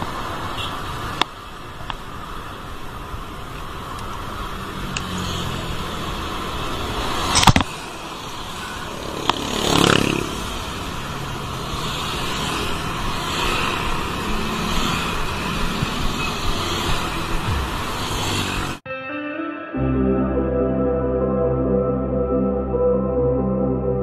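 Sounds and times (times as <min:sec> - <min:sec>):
road traffic: 0:00.0 - 0:18.9
vehicle passing close: 0:04.3 - 0:18.8.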